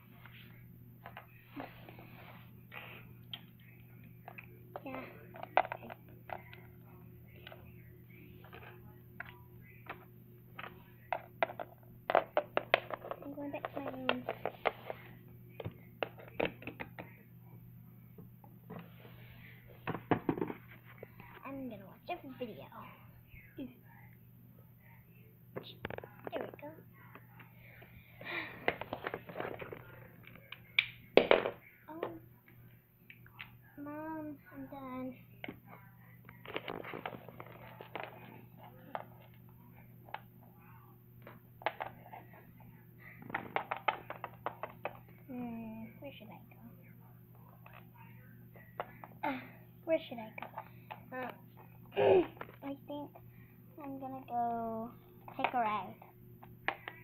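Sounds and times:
faint steady hum: 0:00.0 - 0:57.0
plastic toys tapping wooden floor: 0:10.6 - 0:14.8.

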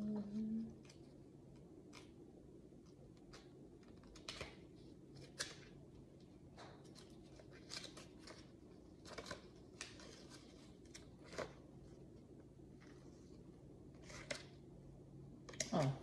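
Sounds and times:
paper pages rustling: 0:02.8 - 0:14.6.

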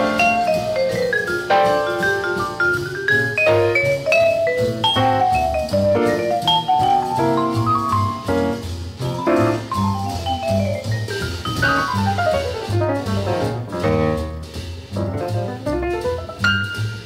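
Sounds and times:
vibraphone solo: 0:00.0 - 0:08.3, 0:09.7 - 0:12.0
drums: 0:00.0 - 0:17.0
walking bass: 0:00.0 - 0:17.0.

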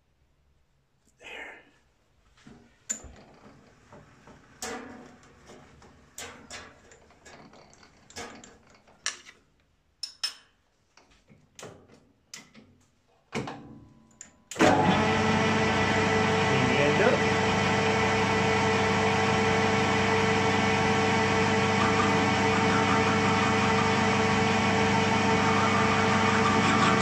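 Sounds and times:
sharp metal clicks and knocks: 0:04.6 - 0:09.4
lathe motor running: 0:14.6 - 0:27.0.

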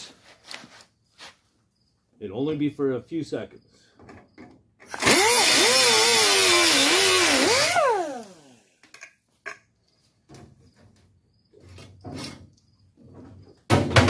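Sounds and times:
grinder cutting sheet metal: 0:05.0 - 0:08.6.

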